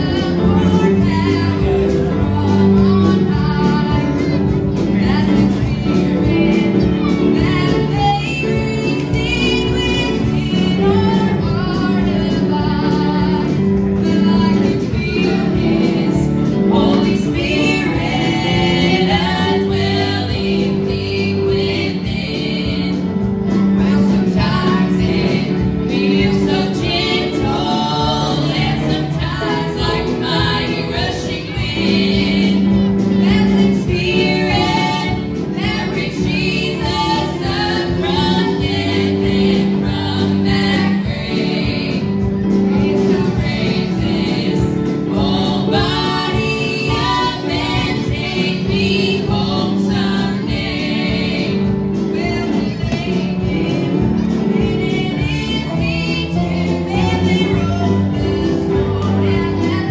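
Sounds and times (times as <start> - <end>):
drums: 0.0 - 59.9
electric bass guitar: 0.0 - 59.9
piano: 0.0 - 59.9
women singing: 0.0 - 59.9.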